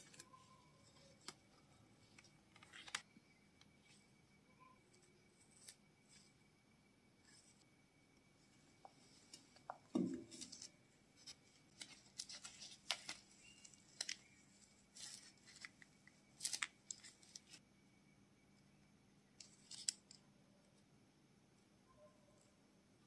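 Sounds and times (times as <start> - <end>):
small parts clicking and rustling: 19.4 - 20.2.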